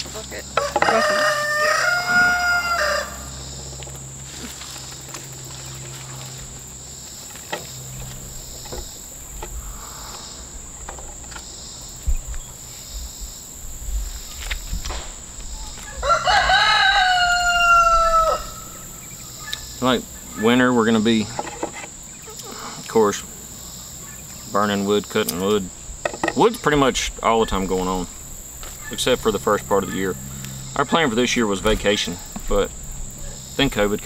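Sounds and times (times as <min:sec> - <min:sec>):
high insect drone: 0:00.0 - 0:34.0
rooster crowing: 0:00.6 - 0:03.4, 0:15.6 - 0:19.6.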